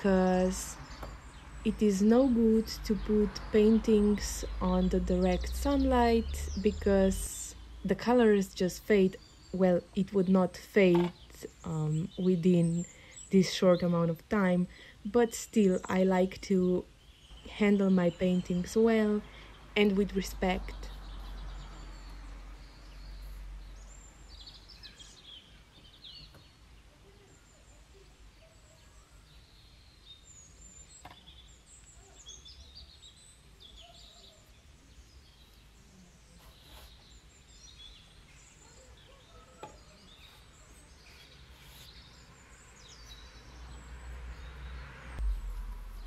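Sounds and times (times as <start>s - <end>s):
small birds chirping: 0.0s - 46.0s
low steady rumble: 45.1s - 46.0s.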